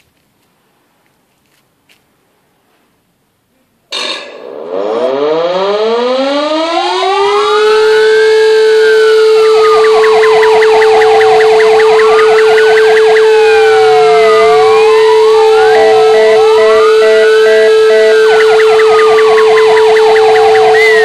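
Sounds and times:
civil defence siren steady tone: 3.9s - 21.0s
fire engine sirens wailing: 4.0s - 21.0s.

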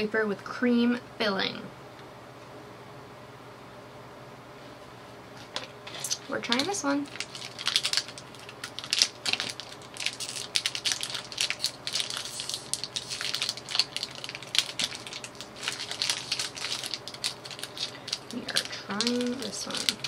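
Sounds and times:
plastic wrapper crinkling: 5.4s - 20.0s.

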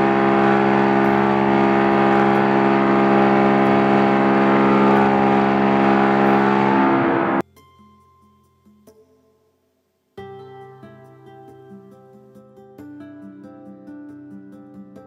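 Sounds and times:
loud reverberant machine hum: 0.0s - 7.4s.

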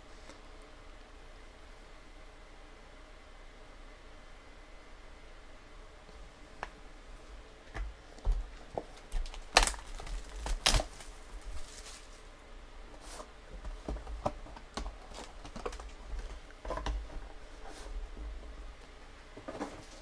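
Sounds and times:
plastic wrapping crinkling: 8.3s - 12.3s, 14.5s - 16.4s.

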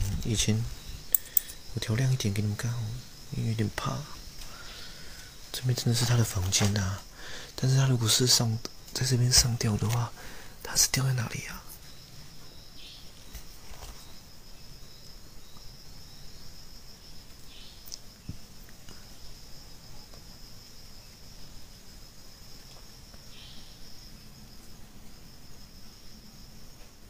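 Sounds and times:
insects chirping: 0.0s - 27.0s
soft rustles: 13.2s - 14.2s.

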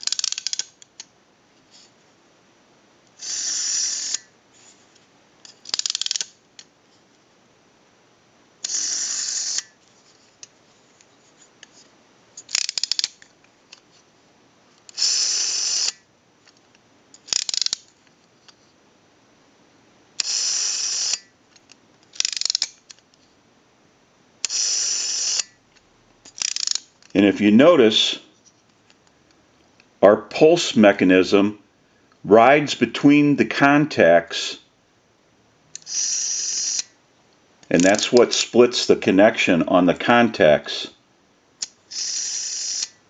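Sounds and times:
ratcheting clicks: 0.0s - 0.8s, 5.6s - 6.3s, 12.5s - 13.2s, 17.2s - 17.8s, 22.1s - 23.0s, 26.3s - 26.9s
rotary dial whirring: 3.1s - 4.3s, 8.6s - 9.8s, 12.4s - 13.2s, 14.9s - 16.0s, 17.2s - 17.8s, 20.2s - 21.3s, 22.2s - 22.7s, 24.4s - 25.5s, 26.4s - 26.9s, 35.8s - 36.9s, 41.9s - 43.0s.

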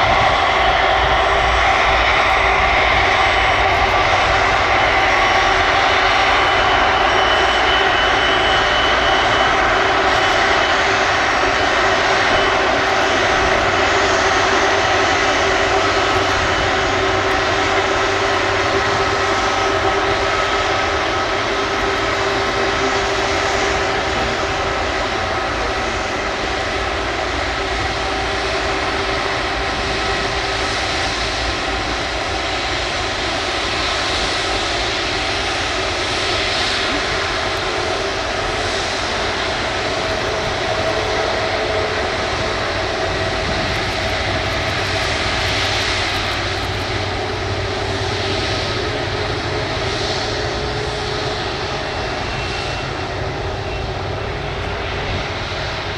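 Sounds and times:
jet engines rumbling and whining: 0.0s - 55.9s.

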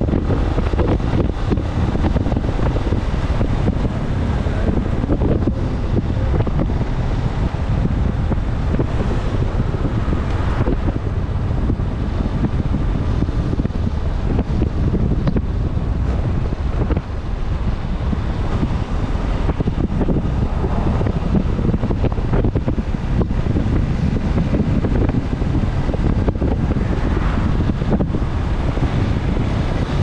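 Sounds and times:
motorcycle road noise: 0.0s - 30.0s
wind buffeting microphone: 0.0s - 30.0s.

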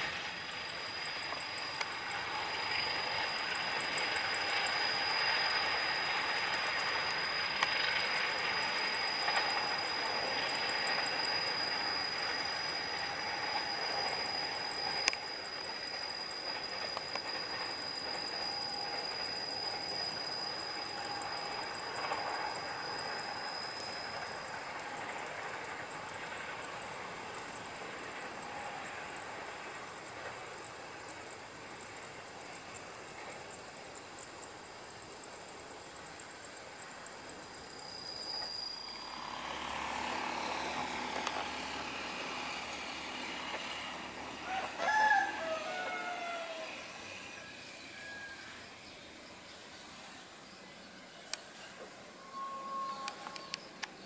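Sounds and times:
thin high steady tone: 0.0s - 54.0s
train passing: 0.0s - 54.0s
rooster crowing: 44.3s - 47.2s.

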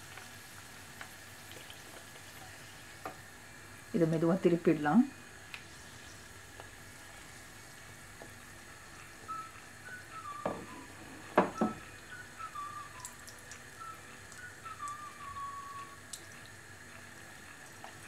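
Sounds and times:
food deep-frying in oil: 0.0s - 18.0s
faint wavering whistle-like tone: 8.7s - 16.0s.

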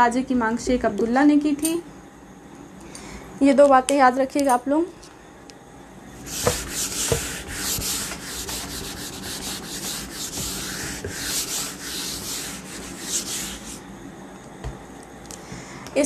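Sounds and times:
eraser wiping a whiteboard: 6.2s - 13.8s.

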